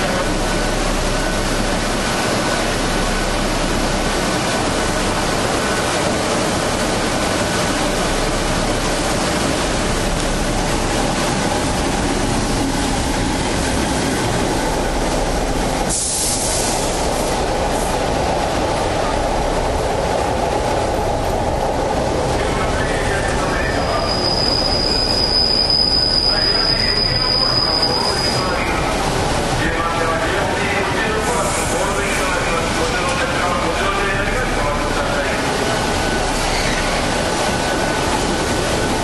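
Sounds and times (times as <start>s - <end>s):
brief air hiss: 15.9s - 17.0s.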